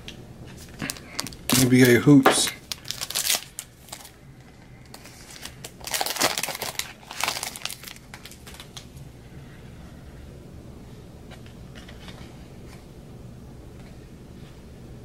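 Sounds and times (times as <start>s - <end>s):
plastic wrapper crinkling: 0.6s - 9.0s.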